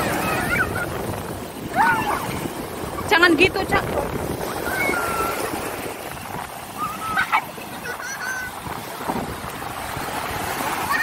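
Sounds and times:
children's high-pitched cries: 0.0s - 1.0s, 1.6s - 2.4s, 4.4s - 5.6s, 6.8s - 8.6s
surf washing onto a beach: 0.0s - 11.0s
wind on the microphone: 0.0s - 11.0s.

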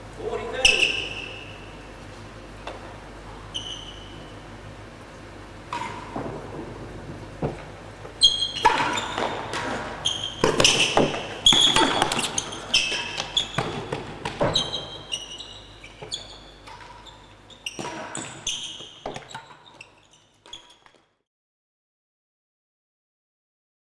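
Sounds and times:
shoe squeaks on floor: 0.6s - 1.7s, 3.4s - 4.4s, 8.2s - 21.2s.

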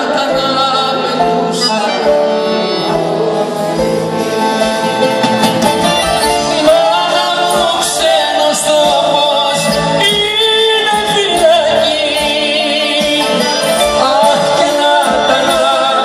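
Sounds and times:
live band playing instrumental: 0.0s - 16.0s.

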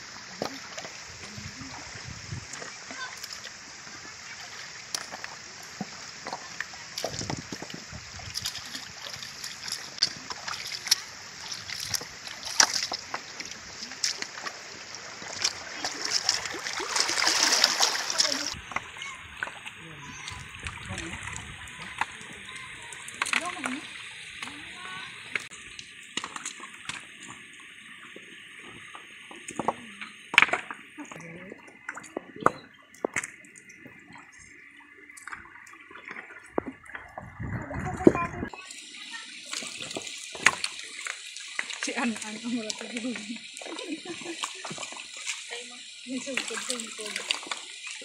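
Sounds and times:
steady hiss of water: 0.0s - 37.2s, 38.5s - 48.0s
footsteps splashing in shallow water: 0.1s - 23.8s, 39.4s - 48.0s
flip-flops clacking on wet rocks: 4.8s - 19.6s.

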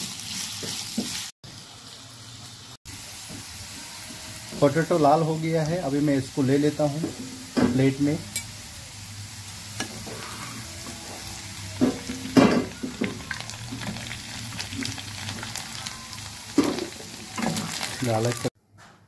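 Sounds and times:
potatoes sizzling in oil: 0.0s - 18.5s
steel spoon scraping a pan: 9.8s - 14.6s.

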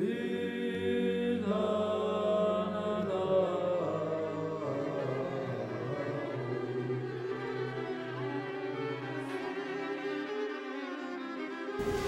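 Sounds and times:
church choir chanting: 0.0s - 9.1s, 11.8s - 12.0s.

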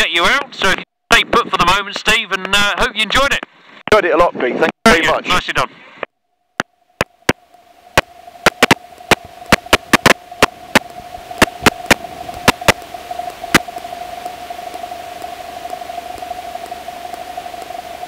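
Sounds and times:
headset clicks and crackles: 8.0s - 17.7s.

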